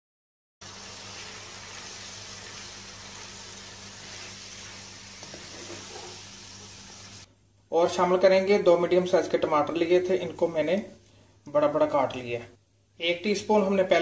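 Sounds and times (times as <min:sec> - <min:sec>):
chicken sizzling in hot oil: 0:00.6 - 0:07.3
low electrical hum: 0:00.6 - 0:14.0.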